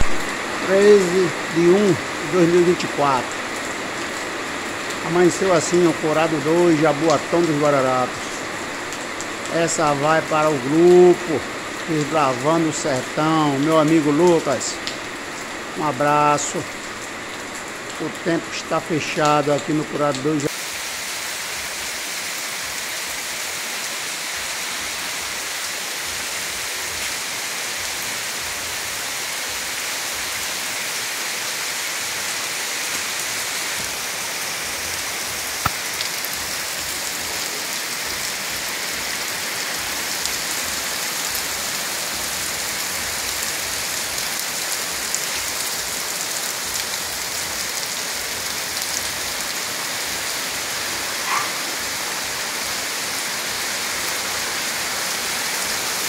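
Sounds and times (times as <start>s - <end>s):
heavy rain: 0.0s - 56.0s.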